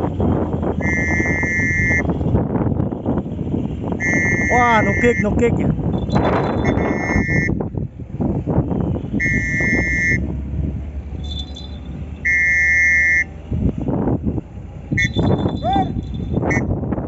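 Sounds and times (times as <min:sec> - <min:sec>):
low engine rumble: 0:00.0 - 0:17.0
high-pitched horn blasts: 0:06.0 - 0:07.5, 0:15.0 - 0:16.7.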